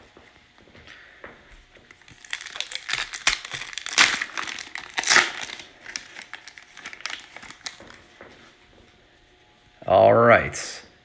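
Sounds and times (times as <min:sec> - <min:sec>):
foil wrapper crinkling: 0:01.9 - 0:08.2.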